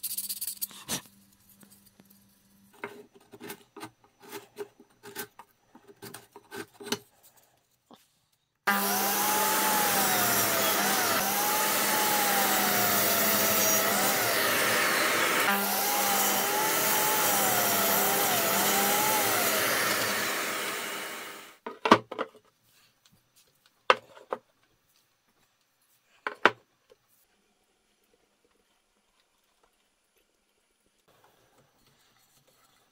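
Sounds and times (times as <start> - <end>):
miter saw cutting wood: 8.7 - 21.6.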